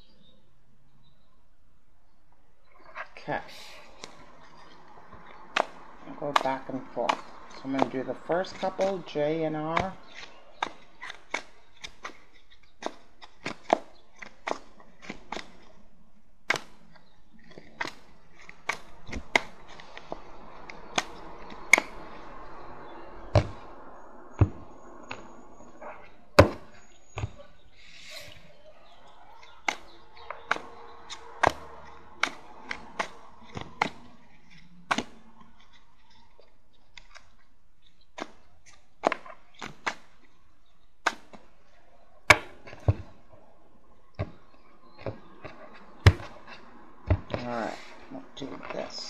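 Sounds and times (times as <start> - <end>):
cards rustling: 3.5 - 15.8, 16.4 - 22.5
cards tapping and knocking: 5.5 - 9.0, 9.7 - 15.7, 16.4 - 22.4, 23.3 - 23.7, 29.6 - 37.4, 42.3 - 43.2.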